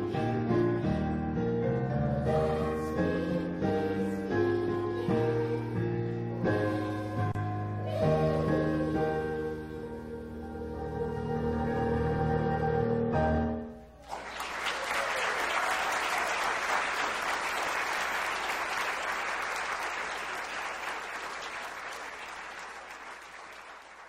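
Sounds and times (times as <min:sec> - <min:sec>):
audience applause: 0:14.0 - 0:24.0.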